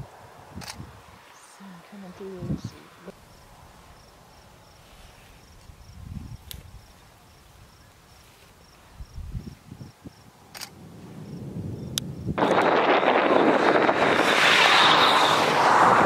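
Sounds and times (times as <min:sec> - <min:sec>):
insect chirping: 0:00.0 - 0:12.4
low gusty rumbles: 0:05.4 - 0:07.0, 0:08.9 - 0:16.0.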